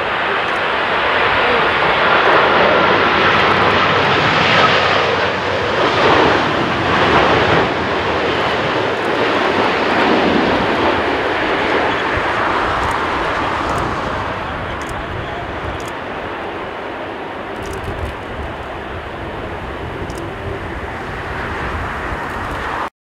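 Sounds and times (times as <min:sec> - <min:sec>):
jet airliner flying past: 0:00.0 - 0:22.9
rushing air: 0:00.0 - 0:22.9.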